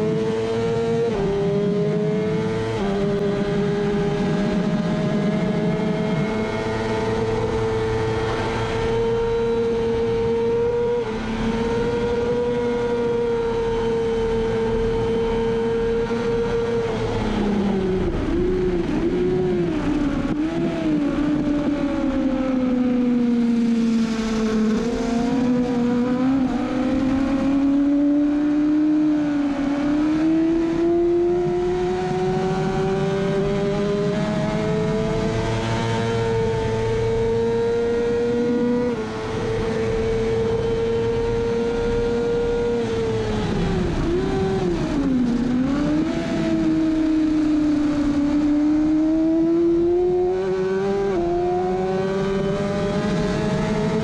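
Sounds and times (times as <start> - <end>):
motorcycle engine revving high: 0.0 - 54.0
wind rush: 14.3 - 54.0.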